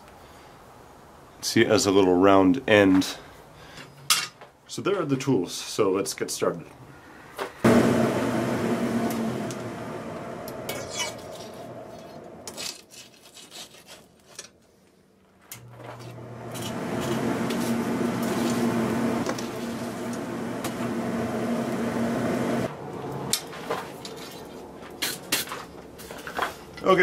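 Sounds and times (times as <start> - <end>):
electric blower humming: 7.6 - 12.5, 15.6 - 23.3.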